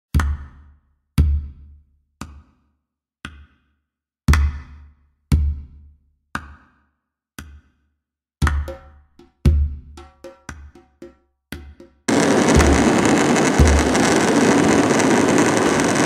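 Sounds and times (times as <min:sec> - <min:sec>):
deep drum hits: 0:12.1 - 0:15.5.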